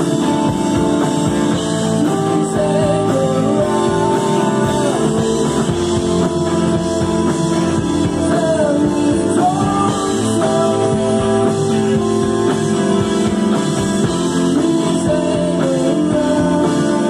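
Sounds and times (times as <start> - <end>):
live rock band playing: 0.0 - 17.0
person singing: 1.6 - 7.1, 7.8 - 12.6, 14.0 - 17.0.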